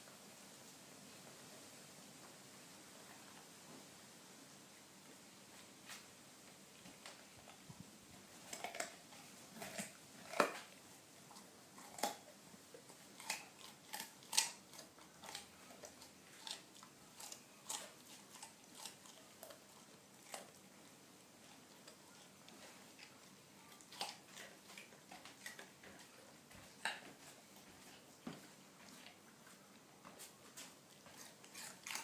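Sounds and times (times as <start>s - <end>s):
dog crunching a carrot: 6.8s - 20.8s, 21.4s - 32.0s.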